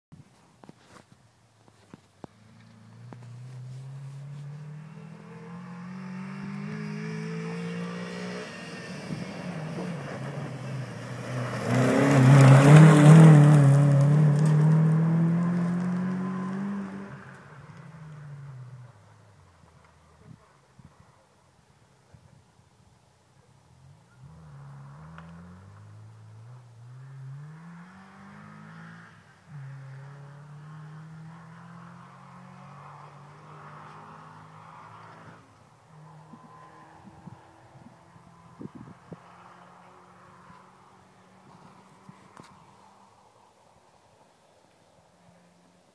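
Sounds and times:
tyres on gravel: 0:00.2 - 0:05.3, 0:07.8 - 0:18.2, 0:41.4 - 0:43.2
rally car engine accelerating: 0:02.4 - 0:19.0, 0:23.9 - 0:42.5.

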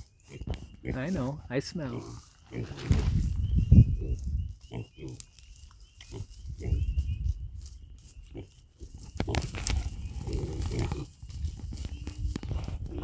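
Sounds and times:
straw bedding rustling: 0:00.0 - 0:13.0
piglets grunting: 0:00.3 - 0:03.1, 0:09.2 - 0:11.1.

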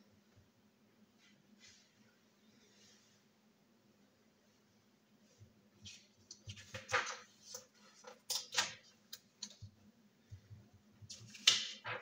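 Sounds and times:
paper rustling on wooden desk: 0:05.8 - 0:08.8.

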